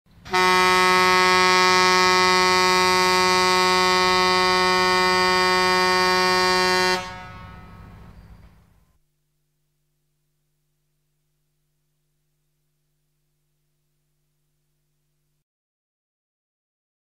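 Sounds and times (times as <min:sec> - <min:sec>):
air horn blast: 0:00.2 - 0:08.2.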